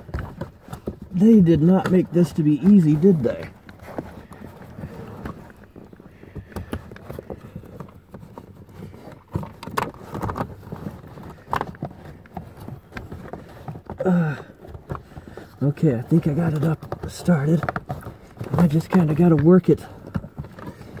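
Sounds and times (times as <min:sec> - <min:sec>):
air filter scraping and knocking: 0:00.0 - 0:21.0
person grunting: 0:14.0 - 0:14.5.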